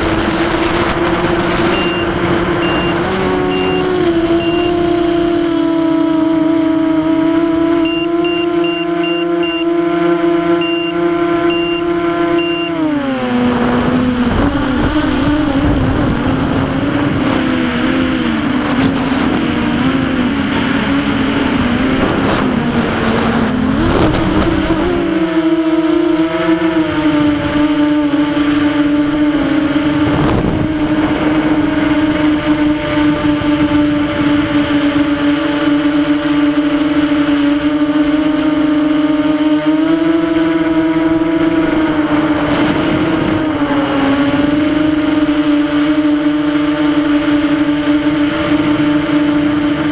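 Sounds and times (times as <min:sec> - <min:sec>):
quadcopter motors whining: 0:00.0 - 0:49.9
short high beeps: 0:01.7 - 0:04.8, 0:07.8 - 0:09.7, 0:10.6 - 0:12.8.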